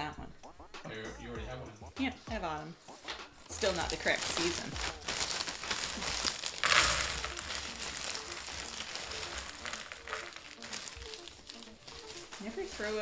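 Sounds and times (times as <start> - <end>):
plastic bag crinkling: 3.5 - 13.0
puzzle pieces poured onto a table: 4.3 - 13.0.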